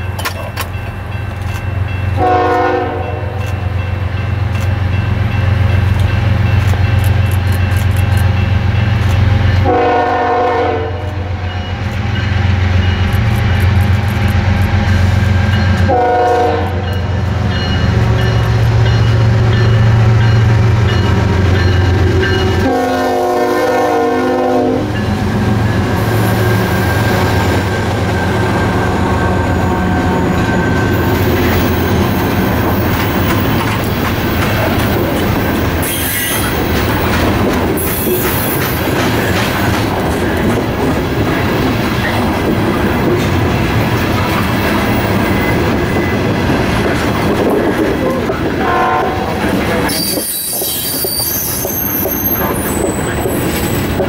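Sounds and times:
train wheels clacking on rails: 0:00.0 - 0:10.0, 0:11.0 - 0:54.0
diesel locomotive engines droning: 0:00.0 - 0:54.0
train horn blasts: 0:02.1 - 0:03.6, 0:09.5 - 0:11.7, 0:15.8 - 0:17.0, 0:22.2 - 0:27.0, 0:48.1 - 0:50.2.

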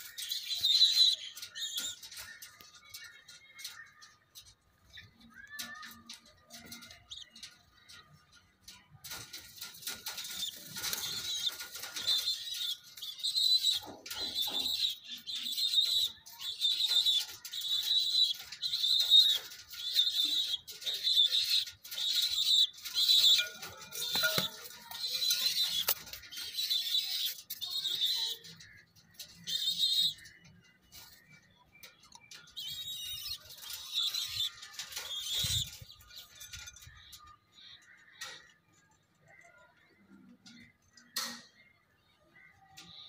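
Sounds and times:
high-pitched chirping: 0:10.0 - 0:28.7.

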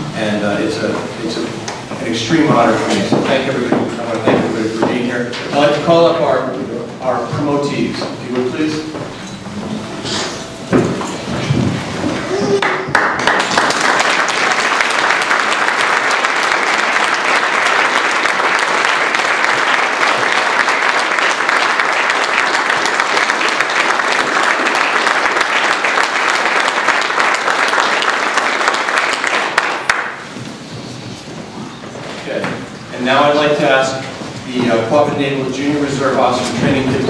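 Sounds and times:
audience applauding: 0:11.9 - 0:30.4.

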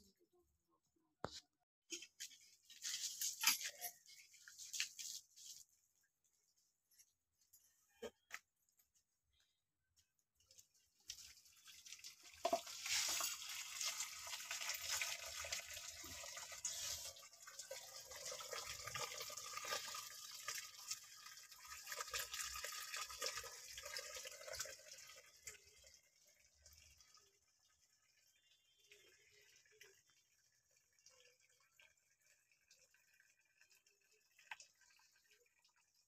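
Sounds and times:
water pouring into metal pan: 0:10.5 - 0:36.0.

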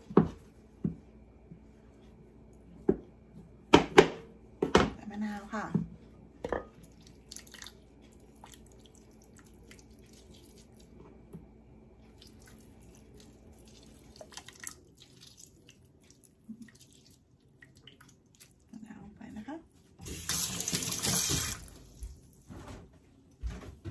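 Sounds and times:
juice dripping: 0:06.8 - 0:11.3, 0:12.0 - 0:18.7.

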